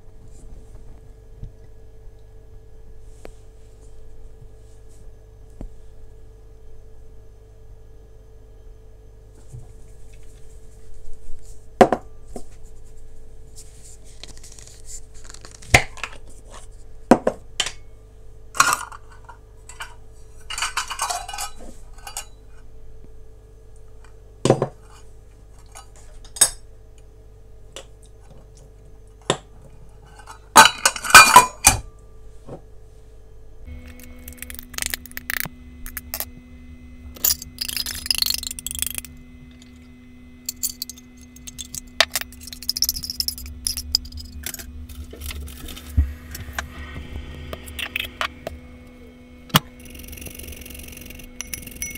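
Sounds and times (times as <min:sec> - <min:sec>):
faint steady hum: 0:00.0 - 0:51.9
utensils and dishes clinking: 0:18.6 - 0:22.4, 0:30.1 - 0:31.8, 0:37.2 - 0:39.9, 0:40.5 - 0:45.9, 0:49.8 - 0:51.9.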